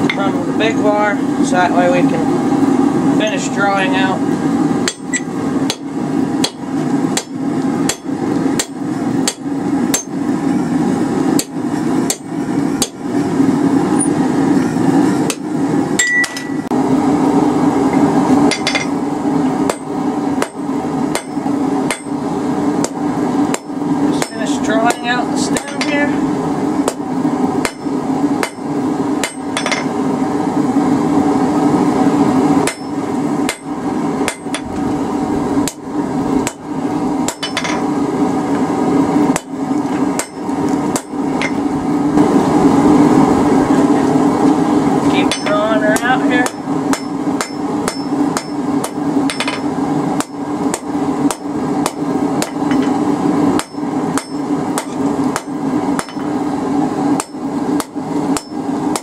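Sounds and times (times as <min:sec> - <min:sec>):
steady low hum: 0:00.0 - 0:59.0
hammer striking metal on anvil: 0:04.8 - 0:06.6, 0:07.2 - 0:10.2, 0:11.4 - 0:13.0, 0:16.0 - 0:16.6, 0:18.5 - 0:18.9, 0:19.7 - 0:22.2, 0:22.8 - 0:26.0, 0:27.6 - 0:28.6, 0:29.2 - 0:29.9, 0:32.6 - 0:33.7, 0:34.3 - 0:34.6, 0:37.3 - 0:37.8, 0:40.2 - 0:41.6, 0:45.3 - 0:52.9, 0:53.6 - 0:56.3, 0:57.2 - 0:59.0.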